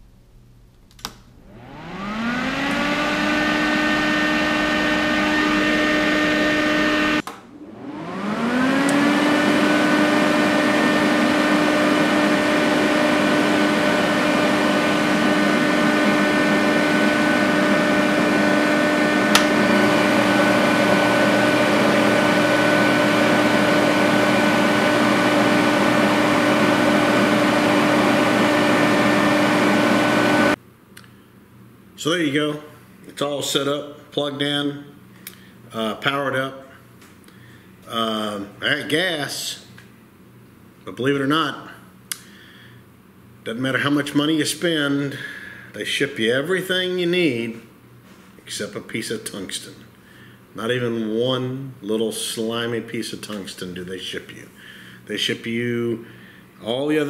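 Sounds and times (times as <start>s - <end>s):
welder cooling motors whining: 0.9s - 30.6s.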